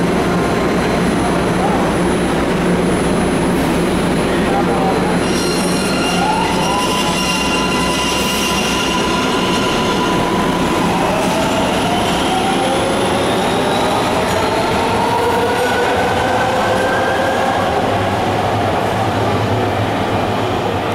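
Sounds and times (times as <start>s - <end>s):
subway train accelerating: 0.0s - 20.9s
train whine rising: 5.2s - 20.9s.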